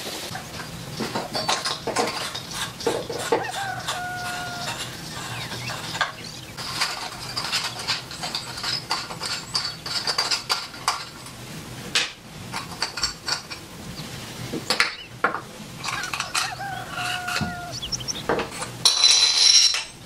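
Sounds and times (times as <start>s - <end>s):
metal parts clinking: 6.6s - 11.2s, 15.8s - 17.4s, 18.5s - 20.0s.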